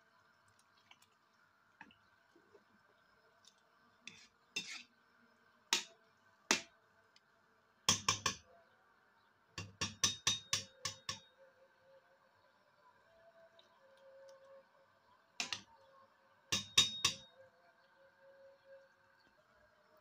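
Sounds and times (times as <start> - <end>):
metal spoon knocking on pot: 7.9 - 8.4, 9.6 - 11.3, 16.6 - 17.3.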